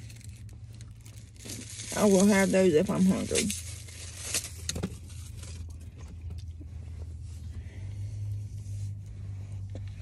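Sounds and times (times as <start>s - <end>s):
peanuts crunched and chewed: 0.0s - 6.6s
steady low hum: 0.0s - 10.0s.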